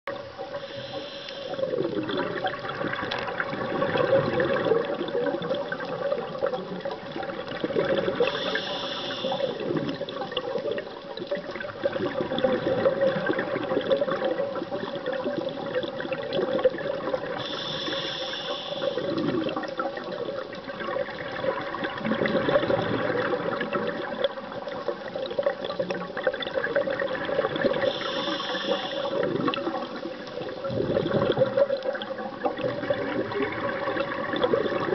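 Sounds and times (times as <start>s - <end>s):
exhaled bubbles gurgling: 0.1s - 34.9s
regulator inhalation hiss: 0.5s - 1.8s, 8.2s - 9.7s, 17.4s - 19.2s, 27.8s - 29.3s.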